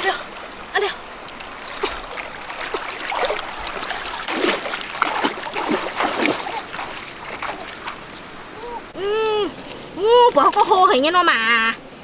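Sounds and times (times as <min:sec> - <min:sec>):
water splashing around wading legs: 0:01.2 - 0:08.4
water pouring from a basket: 0:01.4 - 0:08.1.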